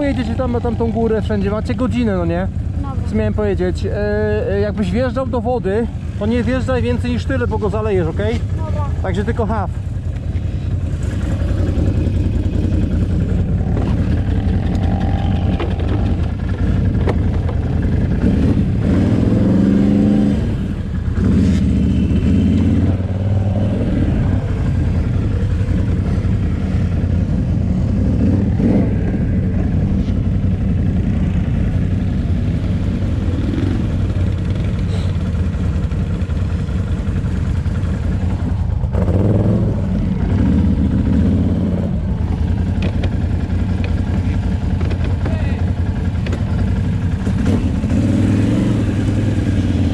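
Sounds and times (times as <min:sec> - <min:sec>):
quad engine revving: 0:11.0 - 0:30.1, 0:38.8 - 0:43.2, 0:46.2 - 0:49.9.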